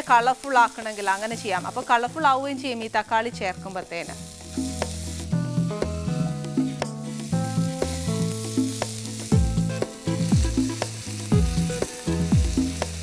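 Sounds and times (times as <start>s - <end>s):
food sizzling in a pan: 0.0s - 13.0s
plucked notes music with ticking beat: 3.4s - 13.0s
deep falling bass beat: 4.4s - 13.0s.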